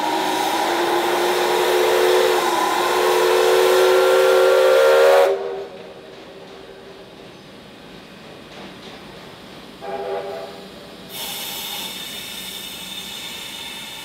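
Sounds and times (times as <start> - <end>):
steam whistle blast: 0.0 - 5.7, 9.8 - 14.0
rush of steam: 0.0 - 8.2, 9.4 - 14.0.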